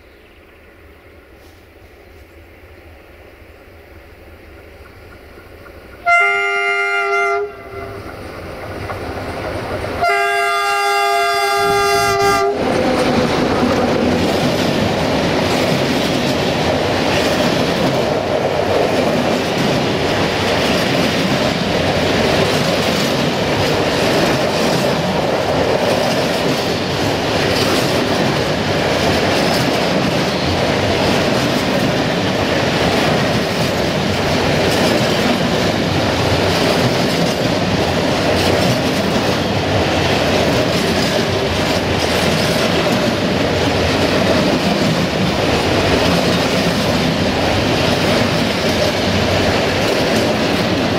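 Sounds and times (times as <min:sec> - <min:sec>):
train wheels rumbling over rails: 0:00.0 - 0:50.9
locomotive horn blasts: 0:06.0 - 0:08.1, 0:10.0 - 0:12.6.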